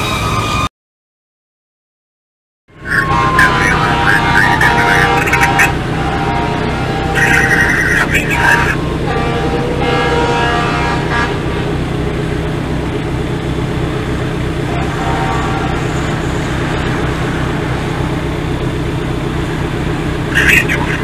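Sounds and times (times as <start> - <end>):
engines idling: 2.7 - 21.0
fire engine horn blasting: 2.8 - 12.1, 14.6 - 18.7, 20.3 - 21.0.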